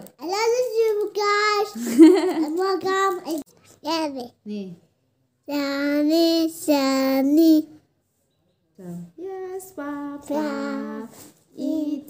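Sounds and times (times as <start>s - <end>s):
boy singing long notes: 9.2s - 12.0s.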